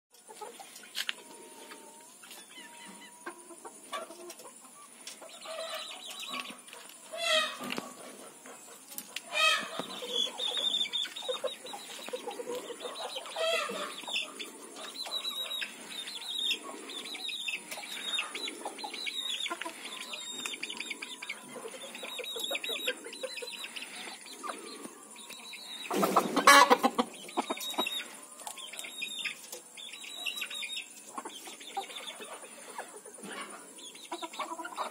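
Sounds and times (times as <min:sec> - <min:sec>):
chickens clucking: 0:00.1 - 0:34.9
chickens squawking: 0:00.2 - 0:34.9.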